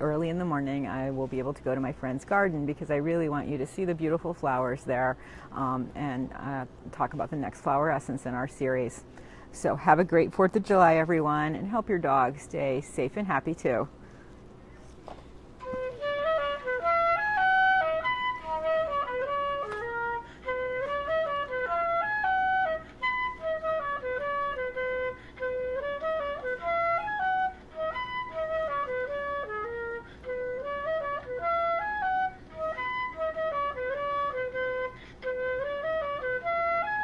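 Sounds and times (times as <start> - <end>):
light instrumental melody: 15.5 - 37.0.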